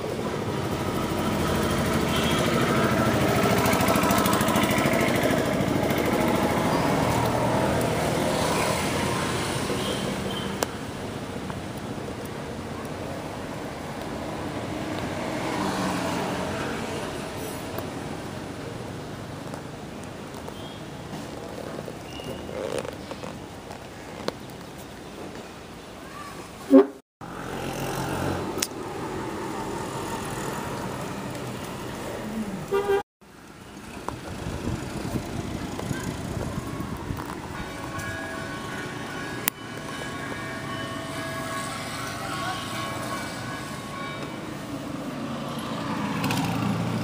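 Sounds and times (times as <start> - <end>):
road traffic rumble: 0.0 - 47.0
vehicle horn toot: 2.0 - 4.4, 32.7 - 33.0.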